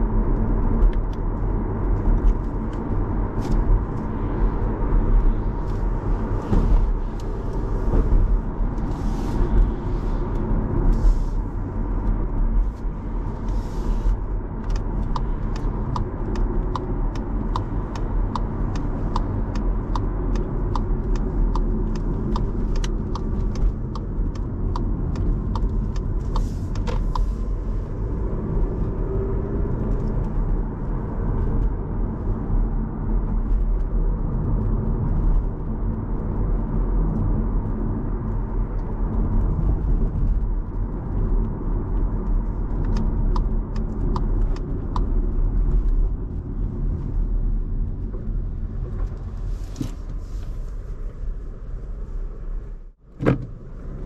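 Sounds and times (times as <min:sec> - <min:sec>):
car engine and road rumble: 0:00.0 - 0:54.0
turn signal ticking: 0:14.2 - 0:46.9.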